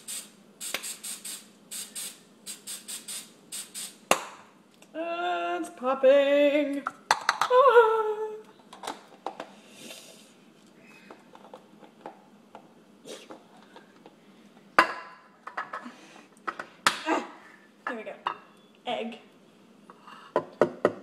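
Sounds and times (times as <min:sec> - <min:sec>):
person singing: 0:04.9 - 0:08.5
dishes and utensils knocking: 0:06.9 - 0:07.6.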